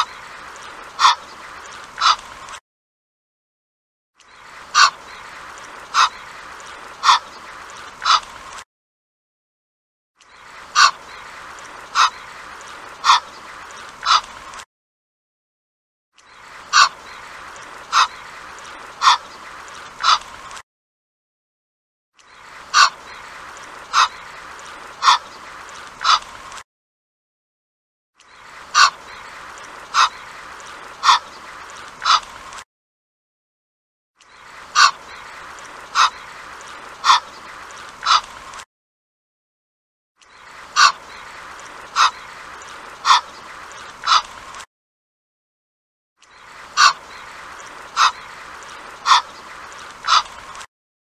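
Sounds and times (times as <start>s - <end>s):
goose calling: 1.0s - 1.3s, 2.0s - 2.2s, 4.7s - 5.1s, 5.9s - 6.2s, 7.0s - 7.4s, 8.0s - 8.3s, 10.7s - 11.2s, 11.9s - 12.3s, 13.0s - 13.4s, 14.0s - 14.3s, 16.7s - 17.1s, 17.9s - 19.4s, 20.0s - 20.3s, 22.7s - 23.1s, 23.9s - 24.3s, 25.0s - 25.4s, 26.0s - 26.3s, 28.7s - 30.3s, 31.0s - 31.4s, 32.0s - 32.3s, 34.7s - 36.3s, 37.0s - 37.4s, 38.0s - 38.3s, 40.7s - 41.2s, 41.9s - 42.4s, 43.0s - 44.3s, 46.8s - 47.3s, 47.9s - 48.4s, 49.0s - 50.4s.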